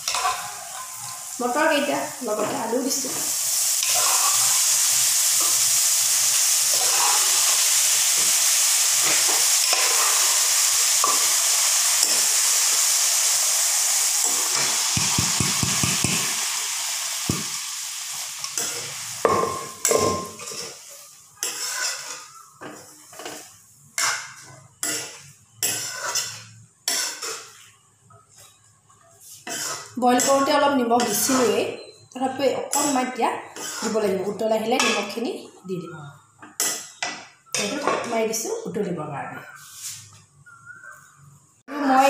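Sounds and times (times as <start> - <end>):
vegetables sizzling in hot pan: 0.0 - 27.8, 29.2 - 35.4
metal spoon scraping pan: 3.8 - 5.6, 6.4 - 8.3, 19.4 - 27.6, 29.2 - 32.0, 33.6 - 34.1.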